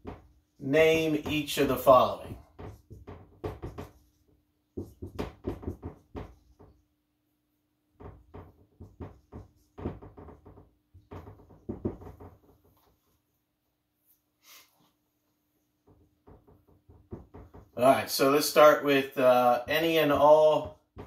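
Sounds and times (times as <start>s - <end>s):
marker writing on whiteboard: 0.0s - 6.9s, 8.0s - 13.0s.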